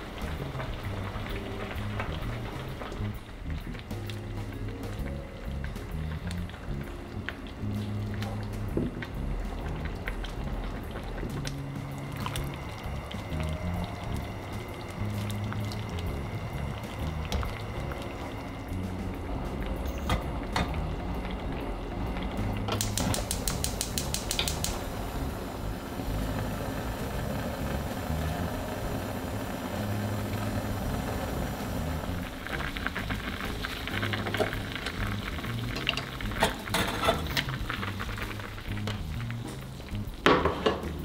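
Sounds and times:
soup bubbling at the boil: 0.0 - 41.0
gas burner igniter clicks: 22.6 - 24.9.

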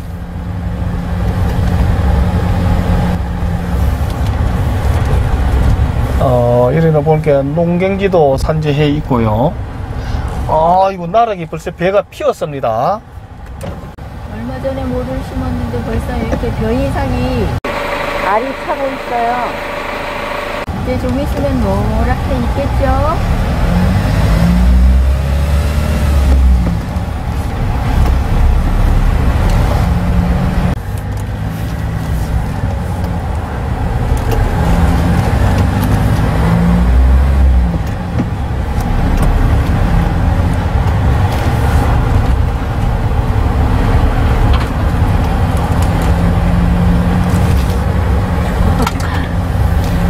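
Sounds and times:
tyre and road noise: 0.0 - 50.0
diesel engine running: 13.3 - 50.0.

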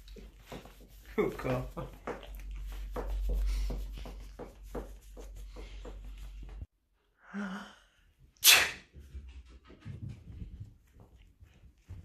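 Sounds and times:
man sneezing: 8.4 - 8.8.

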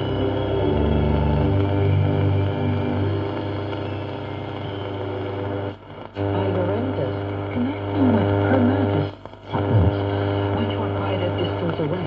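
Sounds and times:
radio mains hum: 0.0 - 12.0
faint distorted broadcast voice: 6.0 - 12.0.

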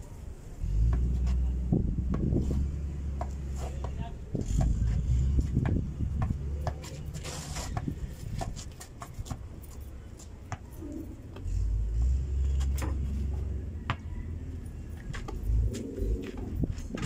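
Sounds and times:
ball and feet tapping: 0.8 - 14.1, 14.9 - 17.0
heavy low rumble: 15.2 - 17.0.

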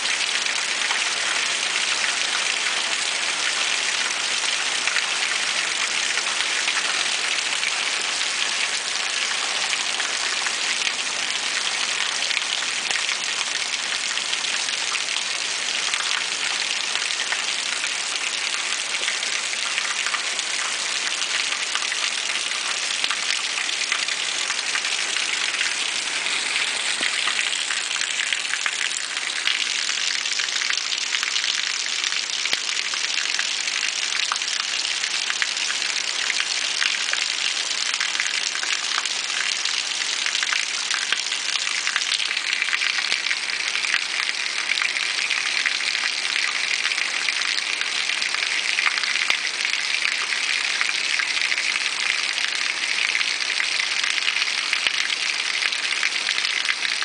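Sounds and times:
water rushing: 15.6 - 31.6.

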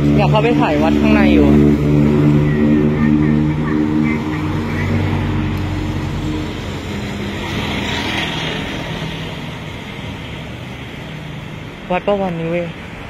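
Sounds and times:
car driving past: 0.0 - 10.4
street traffic hum: 0.0 - 13.0.

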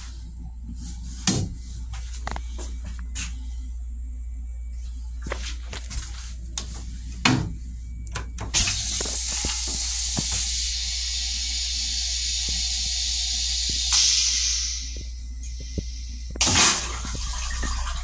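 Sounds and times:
toilet flush hissing: 8.6 - 18.0.

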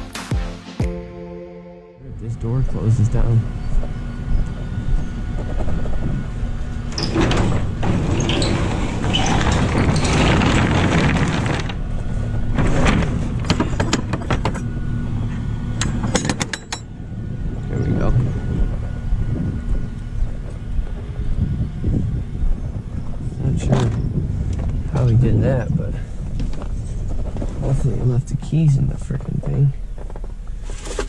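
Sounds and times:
vehicle engine idling: 2.0 - 7.0, 11.7 - 30.8.

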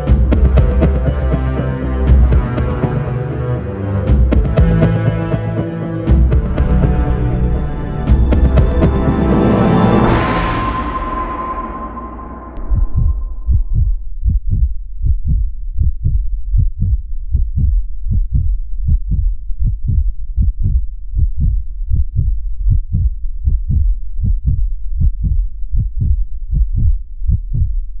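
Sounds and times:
heartbeat thumps: 0.0 - 3.2, 4.0 - 11.5, 12.5 - 28.0.

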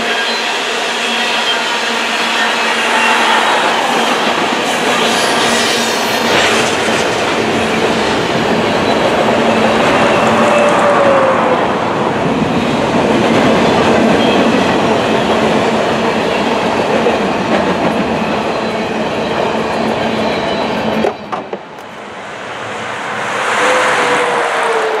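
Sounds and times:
car passing on highway: 2.2 - 7.5, 22.0 - 25.0
train wheels clattering on rails: 12.0 - 22.0.

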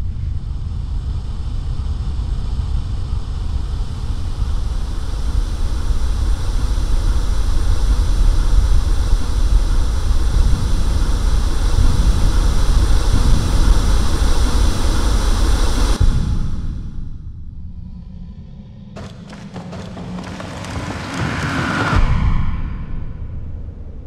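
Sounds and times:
low rumbling drone with hiss: 0.0 - 19.0.

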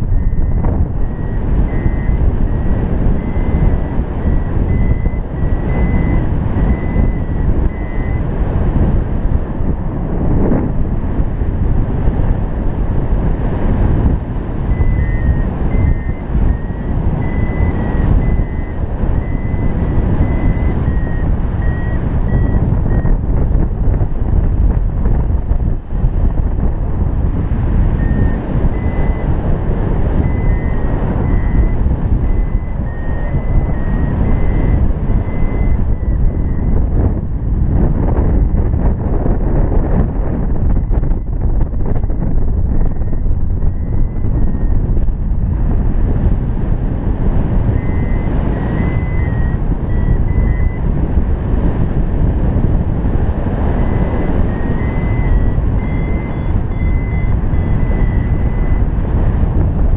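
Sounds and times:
variometer beeping short tones: 0.0 - 8.3, 14.7 - 23.2, 27.9 - 37.2, 38.2 - 38.8, 40.7 - 44.9, 47.7 - 51.0, 53.5 - 58.9
wind rushing over microphone: 0.0 - 59.9.

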